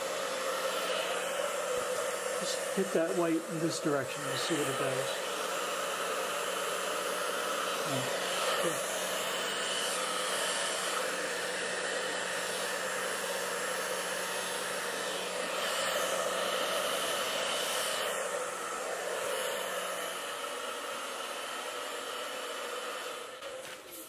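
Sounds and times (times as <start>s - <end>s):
hair dryer blowing air: 0.0s - 24.0s.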